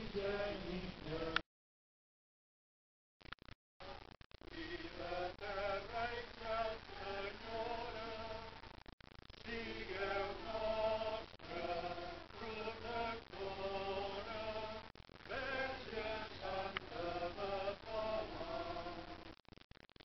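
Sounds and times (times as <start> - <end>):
voices singing a chant: 0.0 - 1.4, 4.5 - 8.6, 9.4 - 19.3.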